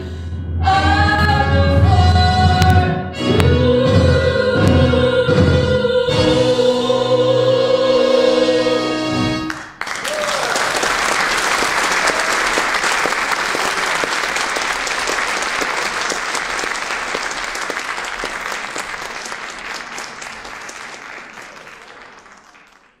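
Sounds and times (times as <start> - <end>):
audience applauding: 9.4 - 23.0.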